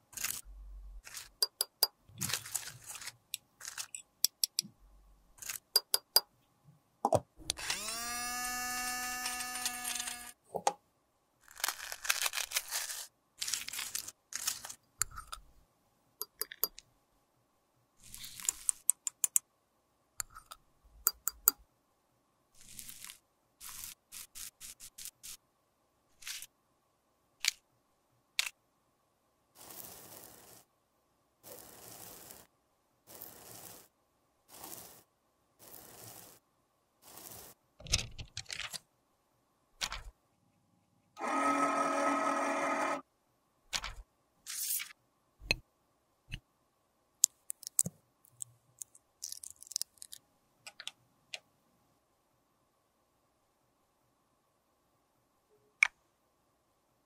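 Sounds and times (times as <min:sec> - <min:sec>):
crunching pressed powder: 0:00.0 - 0:01.6, 0:02.2 - 0:04.0, 0:11.4 - 0:15.5, 0:22.6 - 0:25.4, 0:29.5 - 0:30.7, 0:31.4 - 0:36.4, 0:37.0 - 0:37.6, 0:47.2 - 0:50.2.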